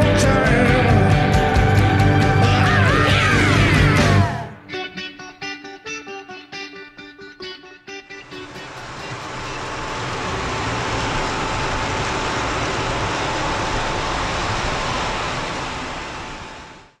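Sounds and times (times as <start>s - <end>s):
thin steady whine: 8.2s - 17.0s
model train rolling rush: 8.3s - 17.0s.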